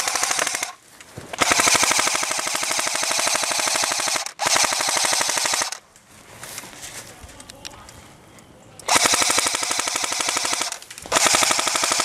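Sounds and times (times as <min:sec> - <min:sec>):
airsoft rifle automatic fire: 0:00.0 - 0:00.8, 0:01.4 - 0:05.8, 0:08.9 - 0:12.0.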